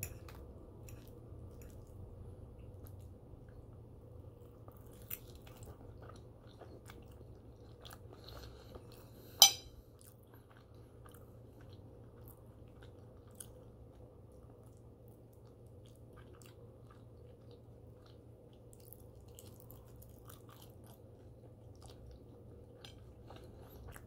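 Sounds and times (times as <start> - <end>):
person chewing food: 0.1 - 24.0
fork clinking on plate: 9.4 - 9.7.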